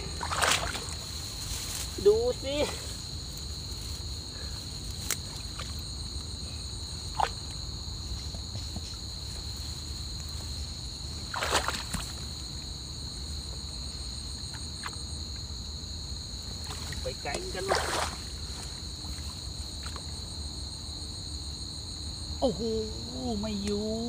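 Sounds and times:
hands rustling in grass: 0.0 - 5.6
high-pitched insect chorus: 0.0 - 24.0.

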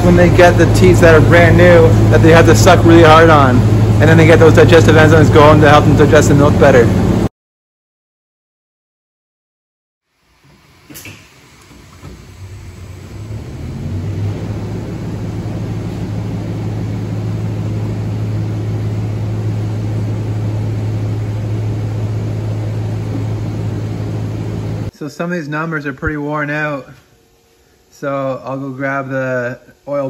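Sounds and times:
motor hum: 0.0 - 7.3, 10.1 - 24.9.

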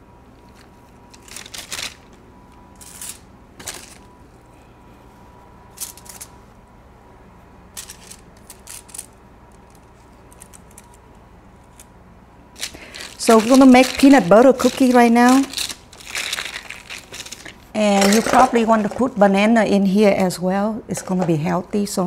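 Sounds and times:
dough rustling and scraping: 12.6 - 19.3.

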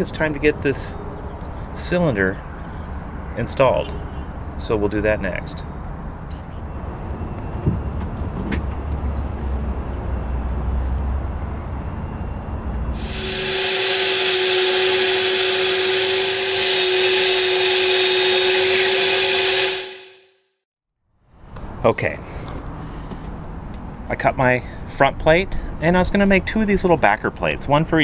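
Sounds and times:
electric drill whining: 13.0 - 20.3.

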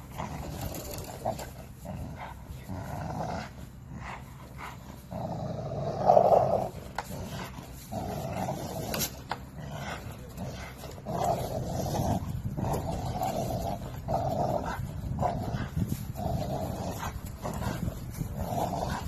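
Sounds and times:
dog growling: 0.0 - 19.0.

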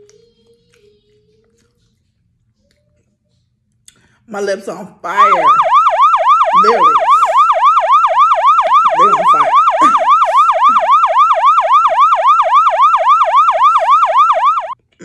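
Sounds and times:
siren yelping: 5.1 - 14.8.

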